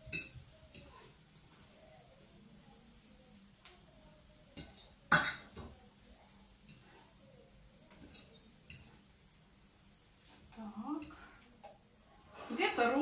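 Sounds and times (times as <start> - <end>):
fork clinking against pan and plate: 8.0 - 9.0.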